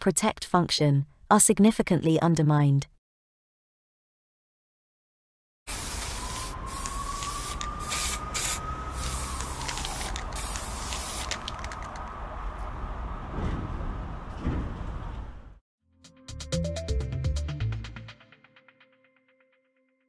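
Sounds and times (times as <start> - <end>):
spray-paint hisses: 5.7 - 11.5
street ambience: 5.7 - 15.6.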